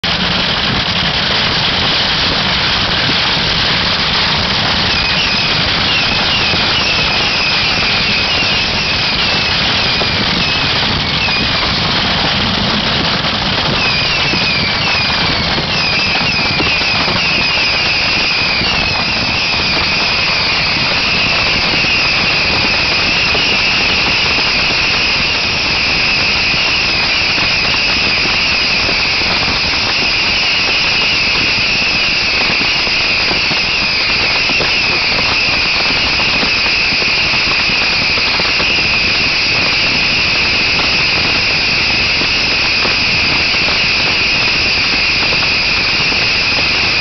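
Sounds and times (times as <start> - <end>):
short falling whistles: 13.8 - 47.0.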